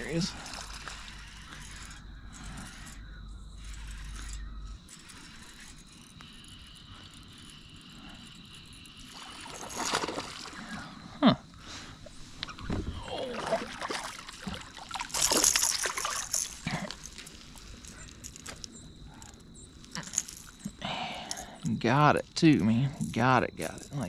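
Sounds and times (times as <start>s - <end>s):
fish splashing in water: 13.2s - 16.6s.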